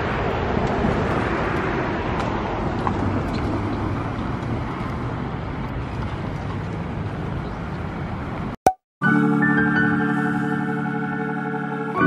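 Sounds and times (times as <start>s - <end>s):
road traffic rumble: 0.0s - 8.6s.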